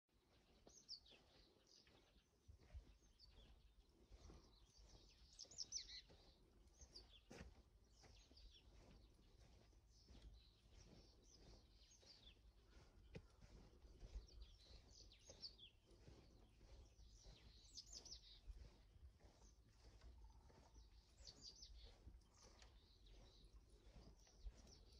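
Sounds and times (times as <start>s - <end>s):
birds chirping: 0.2s - 24.9s.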